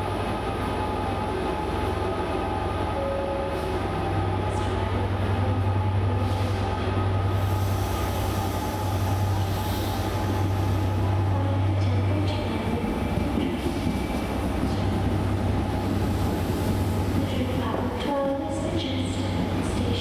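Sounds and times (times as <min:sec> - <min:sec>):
diesel train engine droning: 0:00.0 - 0:20.0.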